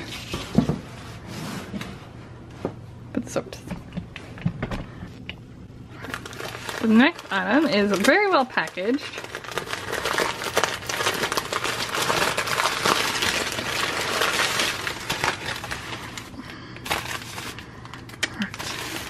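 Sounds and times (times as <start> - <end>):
packing paper crumpling: 5.9 - 19.0.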